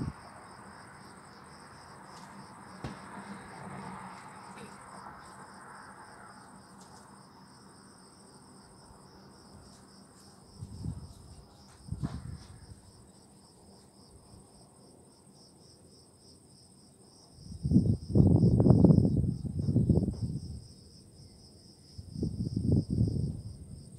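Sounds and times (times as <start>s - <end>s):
crickets chirping: 0.0s - 23.9s
high insect trill: 0.0s - 23.9s.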